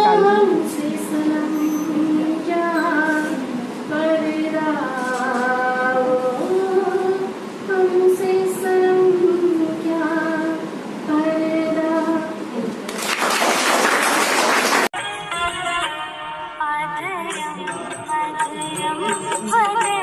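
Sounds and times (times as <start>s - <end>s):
woman singing solo: 0.0s - 12.7s.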